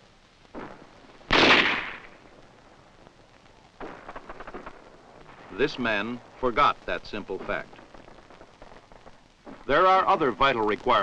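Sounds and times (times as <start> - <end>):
loud gunshot: 0.6 - 2.2
soft clicks and rustles: 7.4 - 9.7.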